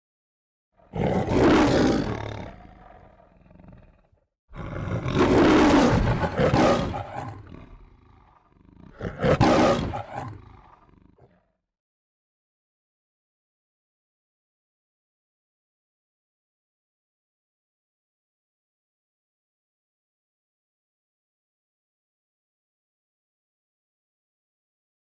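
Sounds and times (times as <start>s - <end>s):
lion roaring: 0.8s - 11.6s.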